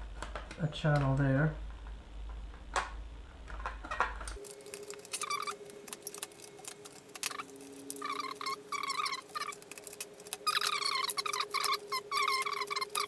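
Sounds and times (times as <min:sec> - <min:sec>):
foam squeaking against knife blade: 0:04.8 - 0:13.0.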